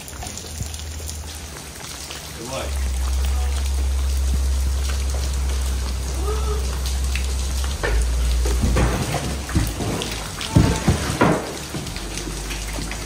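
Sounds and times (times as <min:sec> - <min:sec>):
rain: 0:00.0 - 0:13.0
water dripping: 0:00.0 - 0:13.0
low rumble: 0:02.7 - 0:10.4
debris knocking and clattering: 0:07.8 - 0:13.0.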